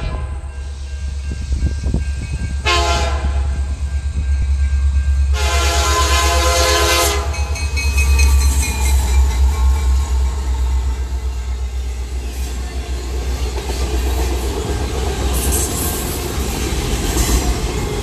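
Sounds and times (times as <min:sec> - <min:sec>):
locomotive air horn blasts: 0:00.0 - 0:00.5, 0:02.6 - 0:03.7, 0:05.3 - 0:07.6.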